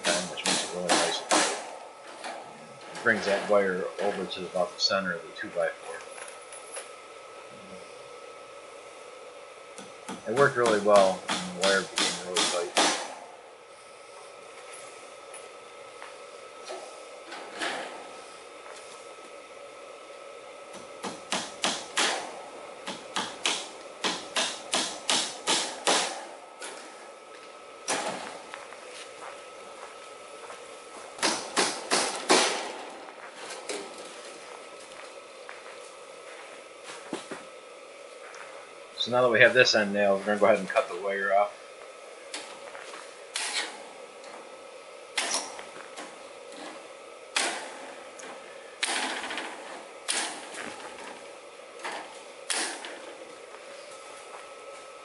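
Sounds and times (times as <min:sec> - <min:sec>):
hammer driving nails into wood: 0:00.0 - 0:01.7, 0:10.1 - 0:13.1, 0:22.9 - 0:26.2, 0:31.2 - 0:32.7.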